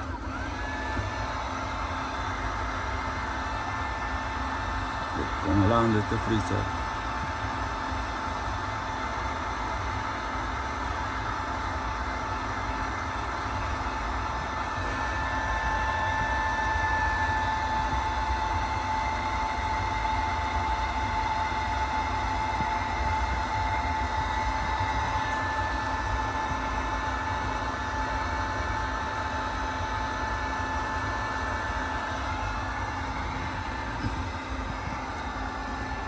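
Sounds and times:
machine whirring with high whine: 0.0s - 36.0s.

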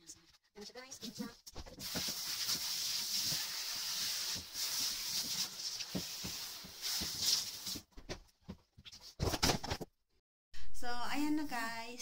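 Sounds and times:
shower head spraying water: 1.8s - 7.8s.

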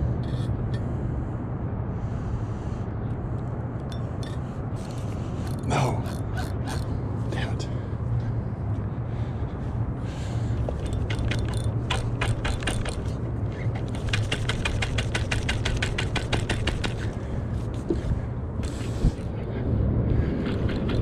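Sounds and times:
steady low rumble: 0.0s - 21.0s
mechanical ratcheting clicks: 10.8s - 13.2s.

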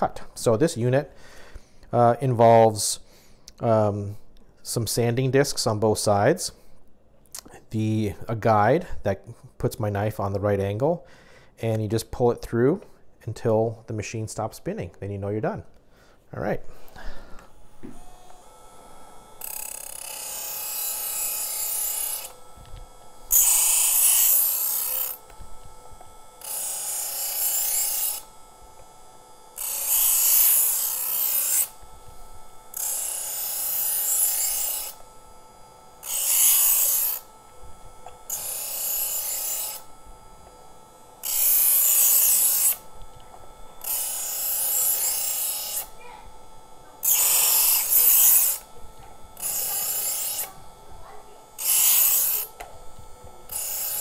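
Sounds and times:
electric knife sharpener whine: 16.7s - 54.0s
knife blade grinding: 18.1s - 46.0s, 46.6s - 54.0s.

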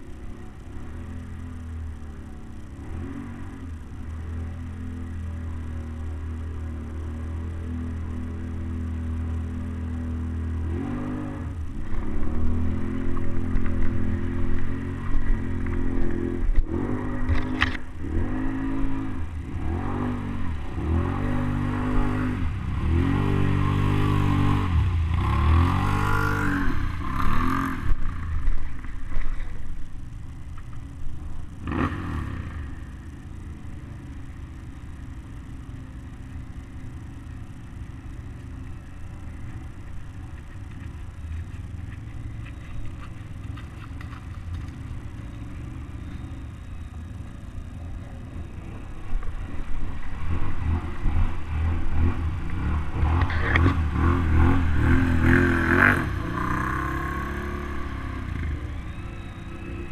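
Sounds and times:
atv engine revving: 0.0s - 59.9s
distant atv engines rumbling: 0.0s - 59.9s.

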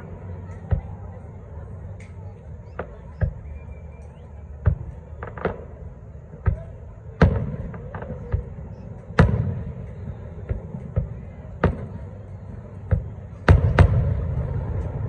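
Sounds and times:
firework shells booming: 4.6s - 15.0s.

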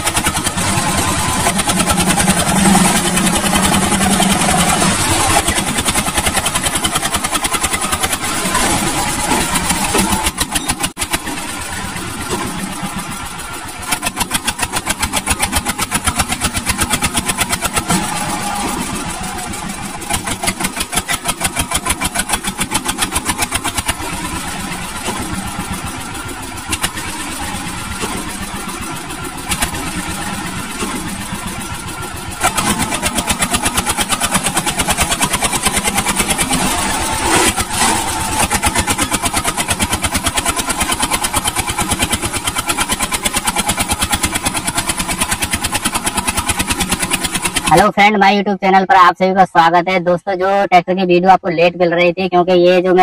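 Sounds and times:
small tractor engines running: 0.0s - 48.8s.

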